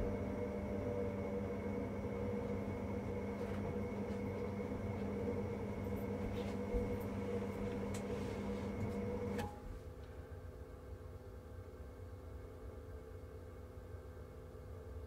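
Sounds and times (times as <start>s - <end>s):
boiler humming: 0.0s - 10.3s
boiler fan running: 0.0s - 10.5s.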